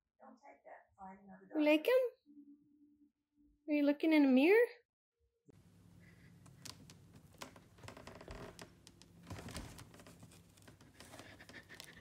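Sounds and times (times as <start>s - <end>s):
faint low hum: 5.5s - 12.0s
crinkling and rustling: 6.3s - 12.0s.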